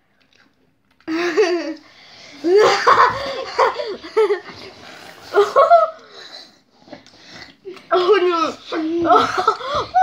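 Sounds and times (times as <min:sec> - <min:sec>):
boys laughing and shrieking: 0:02.4 - 0:06.2, 0:08.0 - 0:10.0.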